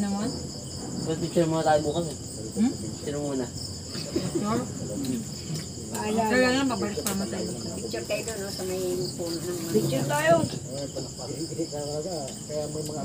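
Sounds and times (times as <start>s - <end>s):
crickets chirping: 0.0s - 13.0s
people talking: 0.0s - 13.0s.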